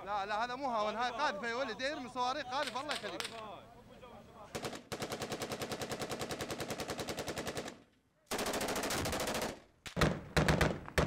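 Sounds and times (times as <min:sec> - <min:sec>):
machine gun automatic bursts: 0:04.5 - 0:10.8.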